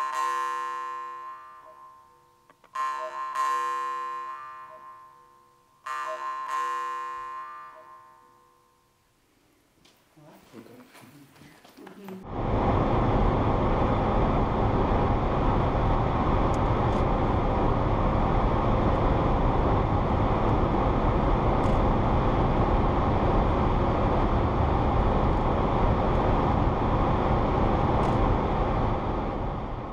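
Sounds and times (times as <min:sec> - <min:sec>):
car cabin road and engine noise: 0:12.3 - 0:29.9.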